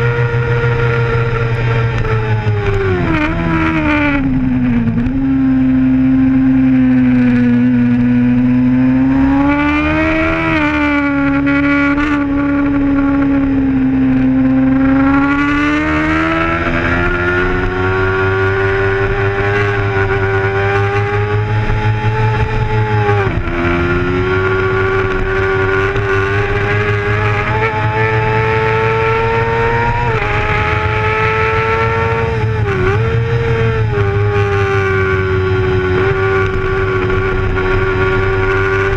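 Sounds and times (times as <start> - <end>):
motorcycle engine at high revs: 0.0 - 38.9.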